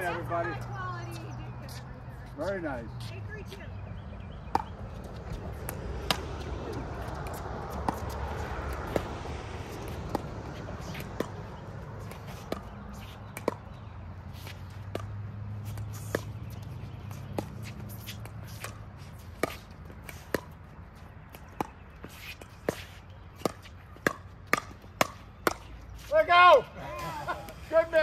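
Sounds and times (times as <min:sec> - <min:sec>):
ball bouncing on court: 0:04.4 - 0:13.9, 0:14.7 - 0:20.6, 0:22.7 - 0:25.7.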